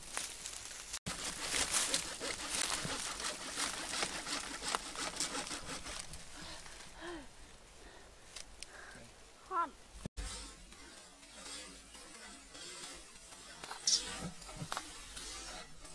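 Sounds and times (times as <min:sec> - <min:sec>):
dry leaves crackling and rustling: 0:00.0 - 0:05.5.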